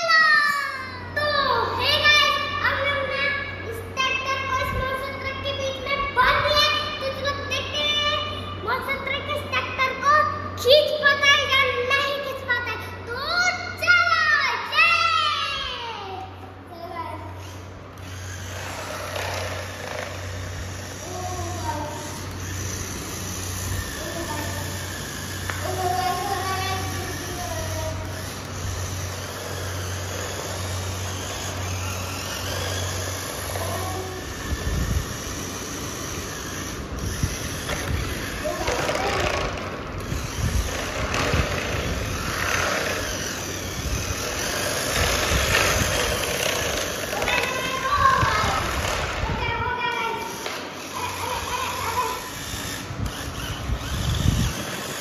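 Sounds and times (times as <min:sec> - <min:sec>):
toy electric motor and gears: 0:00.0 - 0:55.0
toy wheels rolling on stone: 0:18.0 - 0:55.0.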